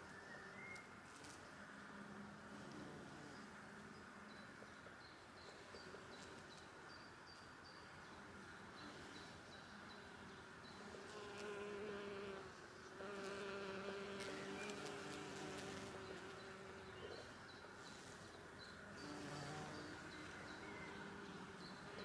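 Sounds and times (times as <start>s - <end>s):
bees buzzing: 10.0s - 17.0s, 18.8s - 22.0s.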